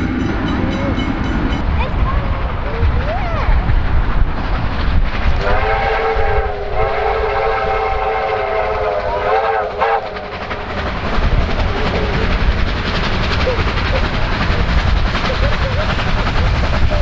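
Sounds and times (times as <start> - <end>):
steam locomotive whistle blasts: 5.4 - 10.2.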